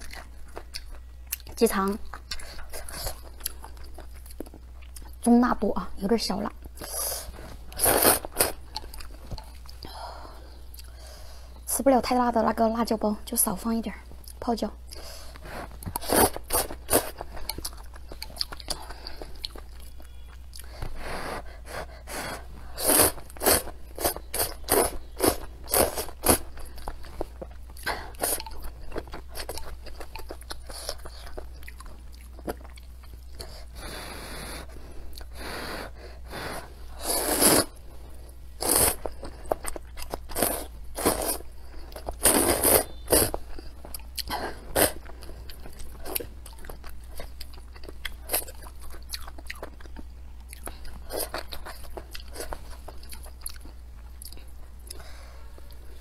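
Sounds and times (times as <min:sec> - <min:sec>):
wet chewing with crunches: 0:00.0 - 0:05.3, 0:14.2 - 0:33.7, 0:38.6 - 0:55.9
noodles being slurped: 0:06.8 - 0:08.6, 0:22.1 - 0:26.6, 0:36.9 - 0:37.8, 0:38.6 - 0:39.2, 0:40.2 - 0:43.4.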